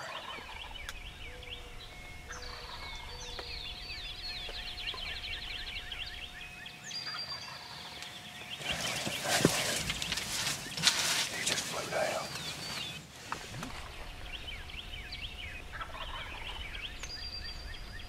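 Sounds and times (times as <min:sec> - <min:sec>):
turkeys gobbling: 0:00.0 - 0:00.9, 0:02.2 - 0:03.5, 0:08.6 - 0:12.8, 0:15.6 - 0:16.7
birds calling: 0:00.0 - 0:18.0
rustle of movement: 0:08.0 - 0:14.3.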